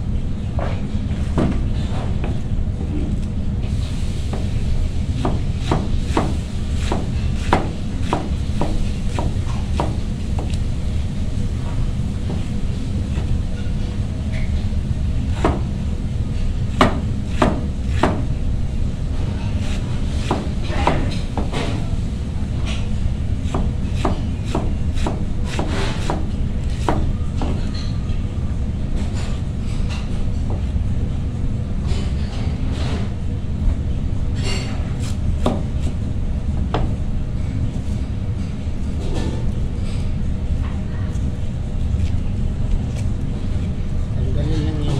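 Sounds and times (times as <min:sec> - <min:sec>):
steady low hum: 0:00.0 - 0:44.9
knife chopping on cutting board: 0:05.2 - 0:10.6, 0:15.3 - 0:15.7, 0:16.7 - 0:18.3, 0:19.6 - 0:21.8, 0:23.4 - 0:27.7, 0:35.0 - 0:35.9.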